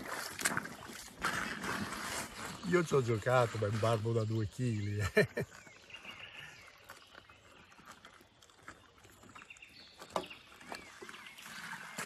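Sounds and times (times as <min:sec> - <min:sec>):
small splashes and clicks: 0:00.0 - 0:04.1
river water lapping: 0:00.0 - 0:12.0.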